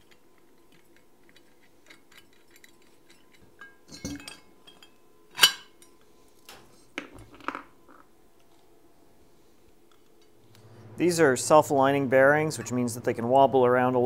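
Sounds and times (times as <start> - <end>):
steel rods clinking: 0.0 - 6.0.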